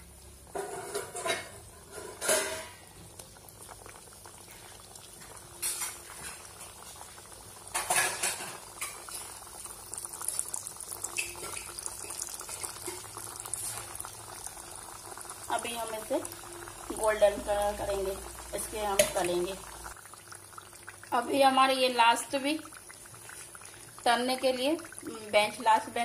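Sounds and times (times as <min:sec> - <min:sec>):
deep-frying bubbling sizzle: 0:00.0 - 0:26.0
metal utensil clattering on pan: 0:00.5 - 0:02.8, 0:05.6 - 0:06.5, 0:07.7 - 0:09.0.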